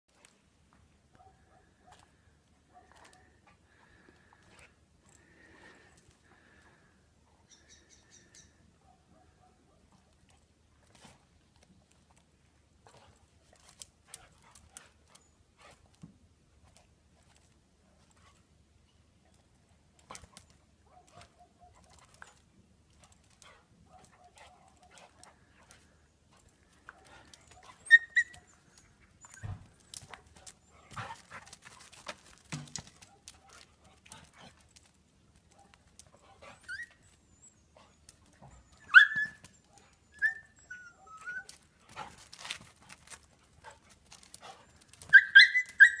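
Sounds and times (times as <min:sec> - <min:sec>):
dogs scuffling on stone: 0:20.0 - 0:37.2, 0:41.4 - 0:46.0
dog whimpering and yelping: 0:27.0 - 0:29.6, 0:36.4 - 0:38.0, 0:38.6 - 0:41.6, 0:45.1 - 0:46.0.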